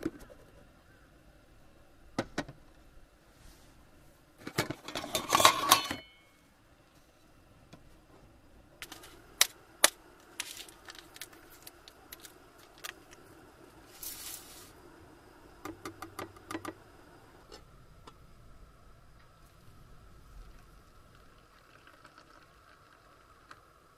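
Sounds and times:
small hard objects clicking and clinking: 0:08.8 - 0:13.2.

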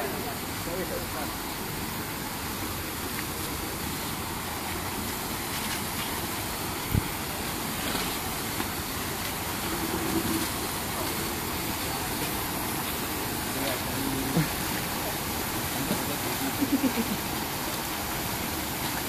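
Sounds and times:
steady rushing noise: 0:04.9 - 0:14.3.

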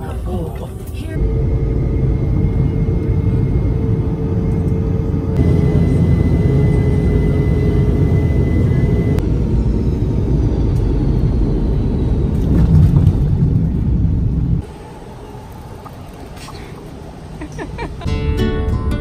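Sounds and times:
jet engine rumble in cabin: 0:00.0 - 0:14.8.

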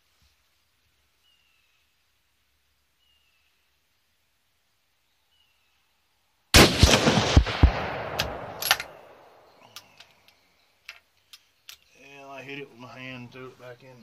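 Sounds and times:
rifle shot with echoes: 0:06.5 - 0:09.6
rifle bolt metallic clicks: 0:08.1 - 0:09.0.

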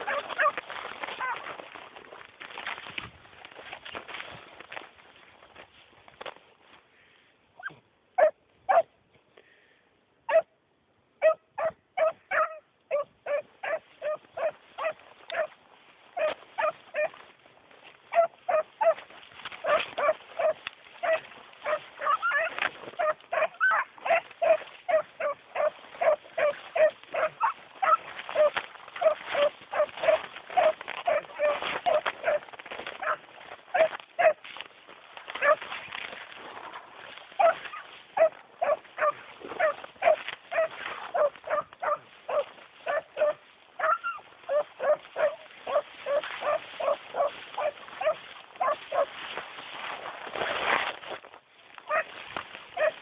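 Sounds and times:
dogs baying and barking: 0:00.0 - 0:01.8, 0:07.6 - 0:08.9, 0:10.3 - 0:10.5, 0:11.2 - 0:15.6, 0:16.2 - 0:17.3, 0:18.1 - 0:34.6, 0:35.3 - 0:35.8, 0:37.0 - 0:49.2, 0:51.9 - 0:53.0.

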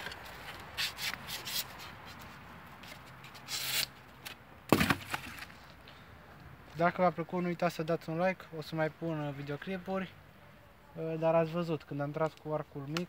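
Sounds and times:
rubbing and scraping on foam: 0:00.0 - 0:04.0.

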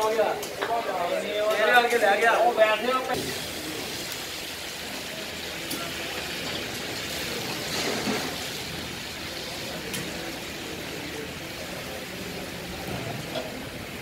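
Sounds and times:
meat sizzling in wok: 0:03.2 - 0:14.0.

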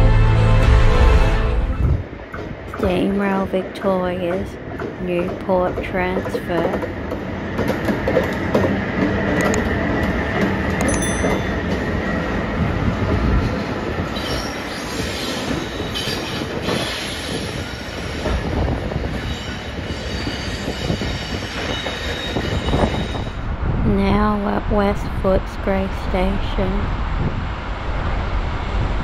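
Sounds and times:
freight train passing: 0:00.0 - 0:29.0
wheels clattering over rails: 0:04.2 - 0:23.3.

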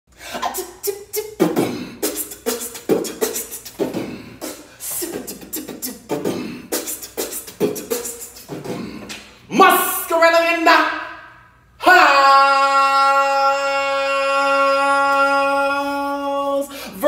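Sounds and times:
person beatboxing: 0:00.2 - 0:09.4.

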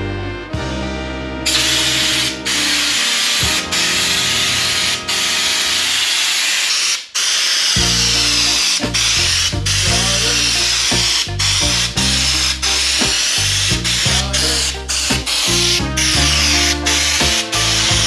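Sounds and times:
spray gun hissing bursts: 0:01.5 - 0:09.1.

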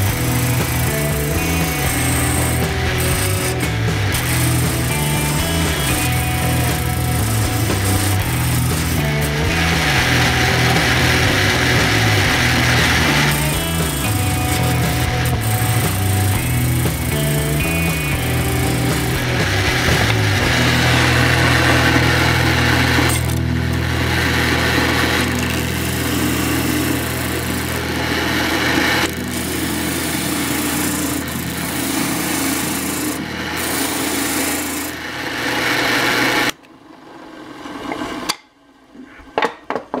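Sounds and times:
wood rasping against sanding drum: 0:00.0 - 0:23.1
drill press motor hum: 0:00.0 - 0:36.6.

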